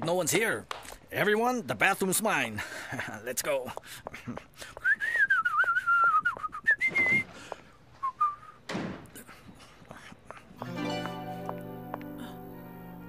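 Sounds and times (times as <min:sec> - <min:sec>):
man whistling a tune: 0:04.8 - 0:07.4, 0:08.0 - 0:08.6
footsteps on stairs: 0:08.7 - 0:12.3.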